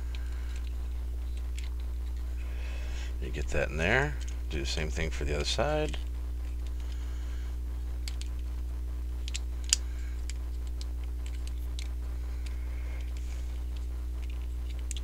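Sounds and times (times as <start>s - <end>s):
low electrical hum: 0.0s - 15.0s
plastic toy clicks and snaps: 9.2s - 12.6s.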